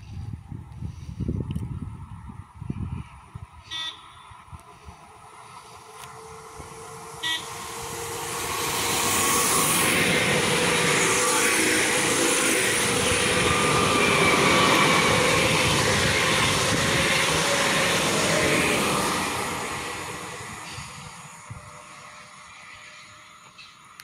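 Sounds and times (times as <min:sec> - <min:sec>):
train wheels rushing on rail: 0:00.0 - 0:24.0
train horn toot: 0:03.6 - 0:04.3, 0:07.1 - 0:07.8.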